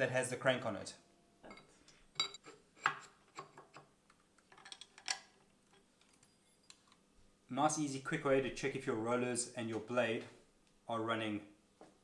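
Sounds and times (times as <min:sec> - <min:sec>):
metallic clicks and clinks: 0:04.5 - 0:07.0.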